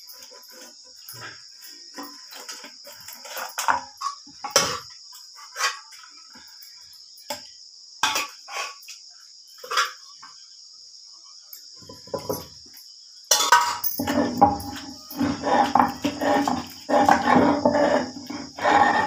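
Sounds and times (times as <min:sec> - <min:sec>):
crickets trilling: 0:00.0 - 0:19.0
knocks and scrapes on stone slab: 0:11.9 - 0:12.5, 0:13.7 - 0:19.0.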